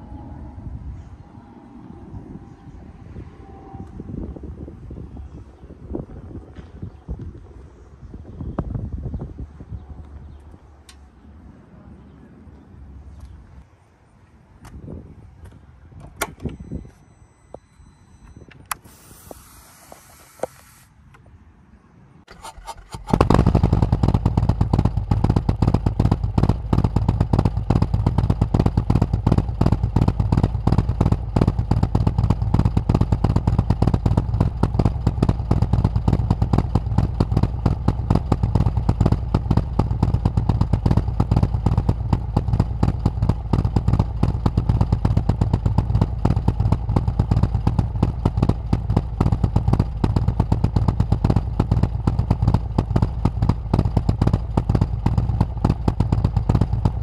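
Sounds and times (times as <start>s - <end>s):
motorcycle engine idling: 22.8s - 57.0s.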